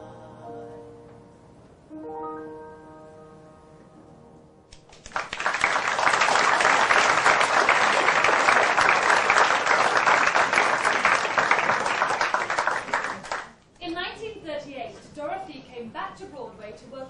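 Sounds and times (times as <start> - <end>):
audience applause: 4.9 - 13.6.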